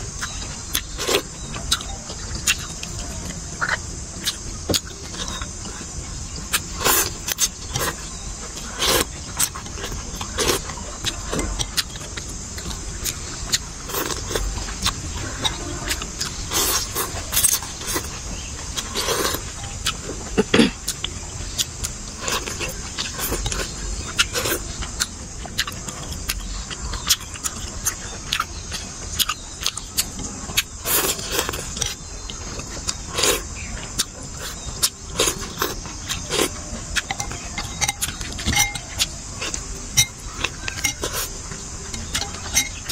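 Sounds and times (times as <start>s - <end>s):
chewing: 0.0s - 42.9s
utensils clicking against bowl: 35.6s - 41.3s.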